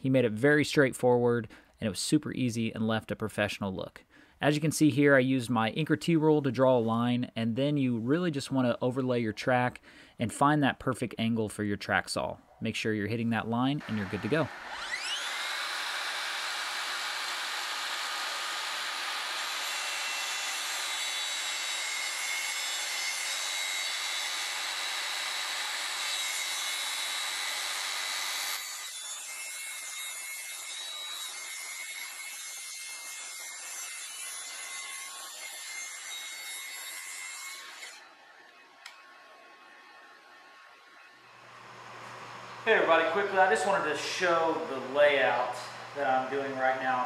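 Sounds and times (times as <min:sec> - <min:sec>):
track saw cutting wood: 0:13.8 - 0:47.0.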